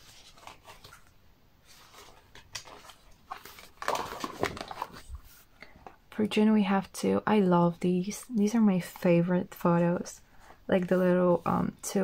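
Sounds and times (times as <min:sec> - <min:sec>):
calendar page rustling: 0:00.0 - 0:06.0.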